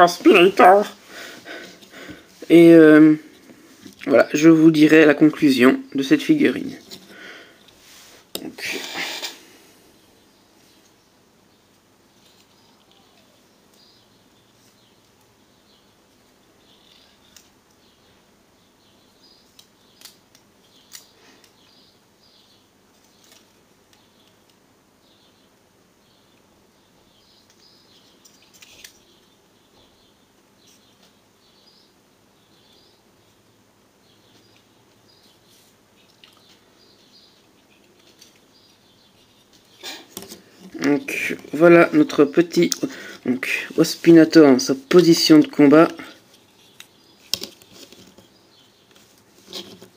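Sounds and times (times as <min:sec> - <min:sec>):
faint high chirping: 0:10.2 - 0:16.0.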